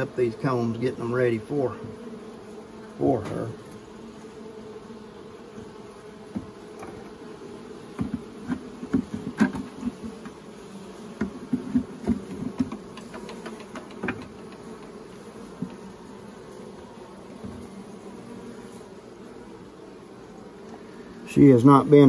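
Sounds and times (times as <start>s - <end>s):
bees buzzing: 0.0s - 22.0s.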